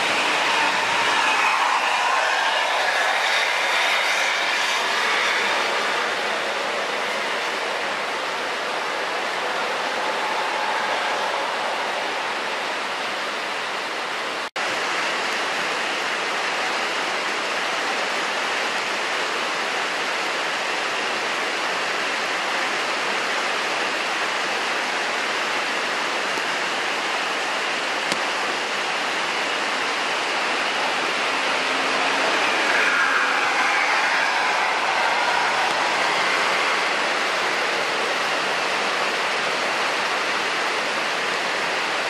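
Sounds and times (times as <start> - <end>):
bus engine: 0.0 - 42.0
heavy rain: 0.0 - 42.0
tyres on wet road: 0.0 - 42.0.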